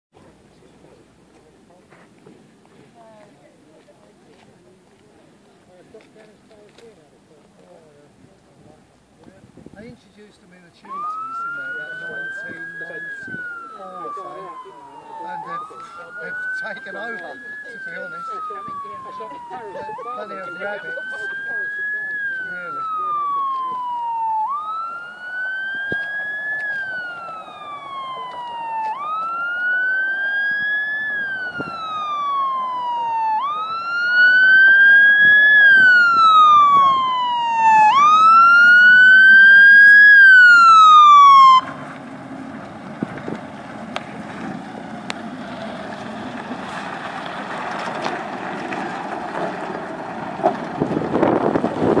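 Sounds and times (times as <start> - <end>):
truck engine: 0.1 - 52.0
tyres on gravel: 0.2 - 52.0
fire engine siren wailing: 10.8 - 52.0.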